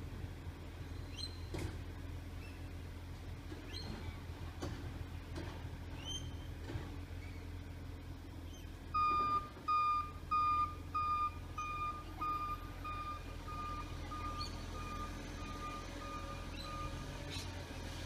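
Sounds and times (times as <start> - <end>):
low steady rumble: 0.0 - 18.0
reversing alarm beeping: 9.0 - 17.1.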